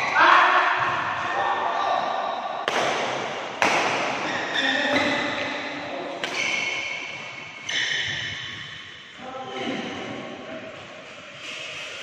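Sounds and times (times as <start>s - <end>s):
racket hitting shuttlecock: 2.6s - 5.6s, 6.2s - 8.8s.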